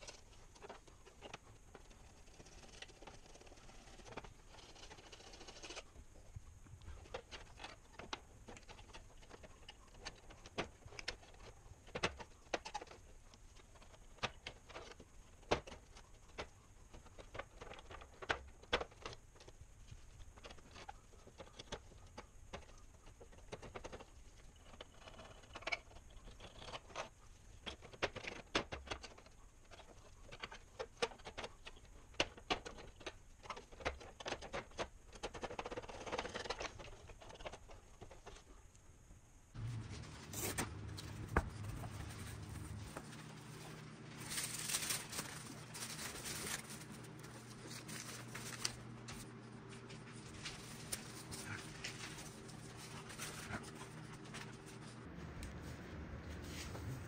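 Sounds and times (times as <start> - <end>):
knife blade scraping plastic: 1.9 - 5.9.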